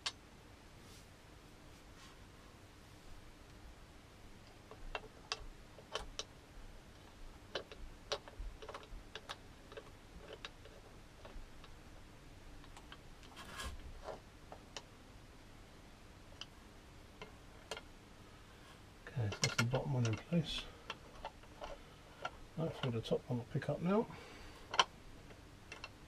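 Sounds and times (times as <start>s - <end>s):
short scraping rustle: 13.3s - 13.8s
metal bolts clicking and tapping: 19.2s - 23.1s.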